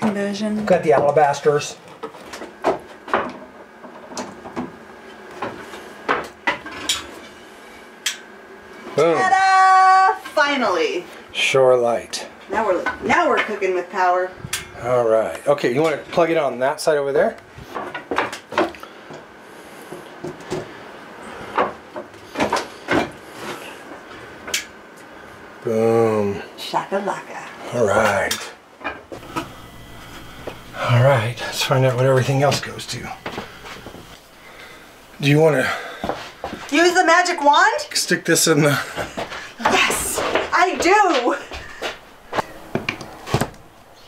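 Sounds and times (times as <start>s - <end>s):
footsteps on wooden slats: 35.7s - 36.7s, 38.7s - 43.6s.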